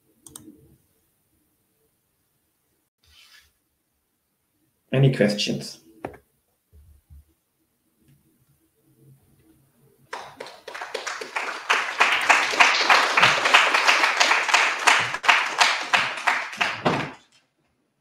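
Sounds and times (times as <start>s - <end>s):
audience applauding: 10.1s - 17.3s.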